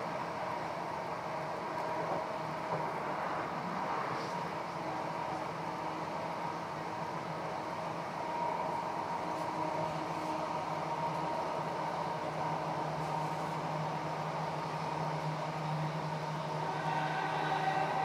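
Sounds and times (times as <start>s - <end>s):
constant hum: 0.0s - 18.0s
train wheels rumbling on rail: 0.0s - 18.0s.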